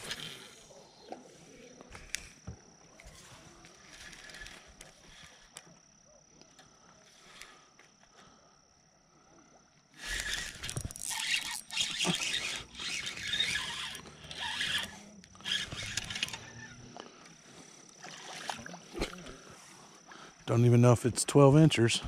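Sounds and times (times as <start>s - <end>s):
fishing reel whirring: 3.0s - 5.7s, 9.9s - 16.9s.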